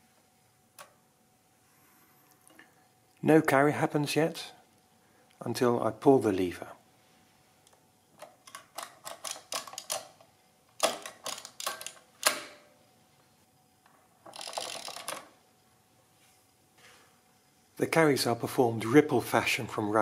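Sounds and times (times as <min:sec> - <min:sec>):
adding machine clicks: 0:08.2 - 0:12.7, 0:14.3 - 0:15.3.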